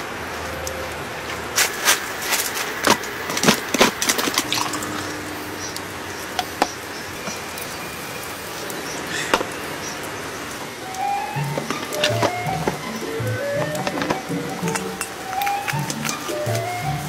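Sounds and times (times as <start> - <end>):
steady rain: 0.0 - 17.0
glass clinks: 14.6 - 15.2.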